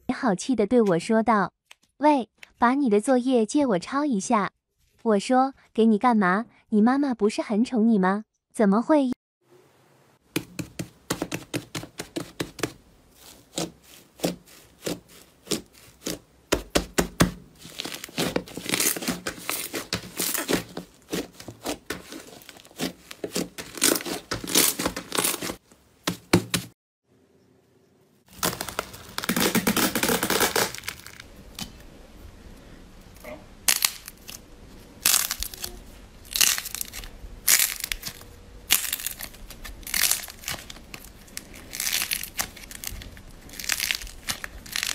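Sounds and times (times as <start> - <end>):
slime crackling and popping: 28.3 - 31.2, 35.0 - 44.9.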